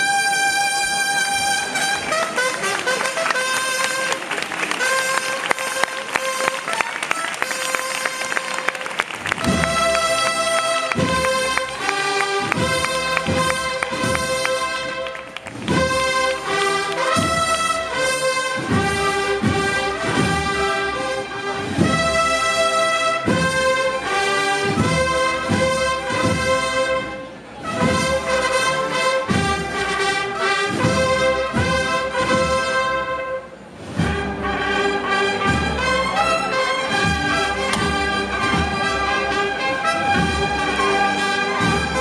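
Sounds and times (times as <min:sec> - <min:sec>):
brass melody: 0:00.0 - 0:42.0
steady drum beat: 0:09.2 - 0:22.6, 0:23.2 - 0:27.0, 0:36.8 - 0:39.3.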